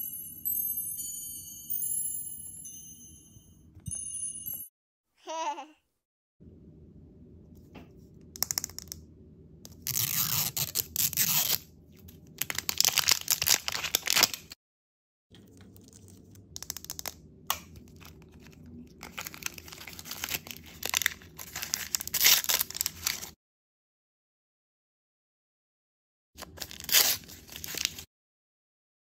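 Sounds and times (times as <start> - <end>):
plastic packaging crinkling and ripping: 9.7 - 14.6, 15.6 - 23.4, 26.4 - 28.1.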